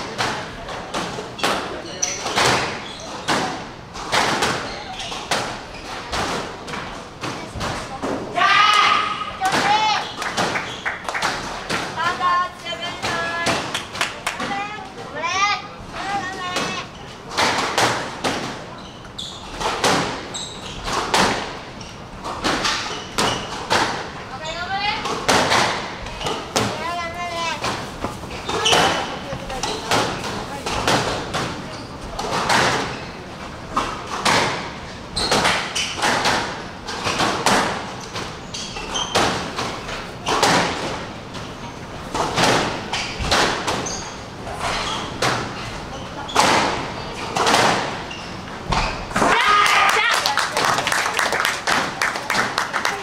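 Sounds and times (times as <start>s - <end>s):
squash ball cracks off rackets and walls: 0.0s - 8.3s, 19.6s - 24.2s, 25.0s - 26.9s, 33.7s - 38.4s, 39.0s - 41.1s, 42.1s - 44.0s, 46.3s - 49.5s
shoes squeaking on wooden floor: 0.0s - 13.5s, 14.5s - 49.4s.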